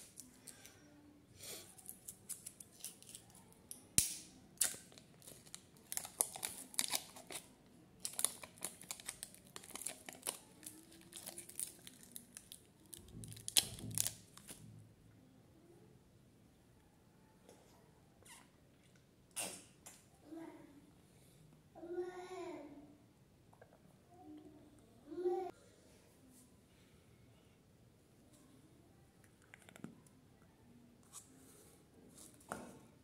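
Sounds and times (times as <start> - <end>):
sharp plastic snaps: 3.7 - 5.0
plastic cups crinkling and clicking: 4.6 - 14.6.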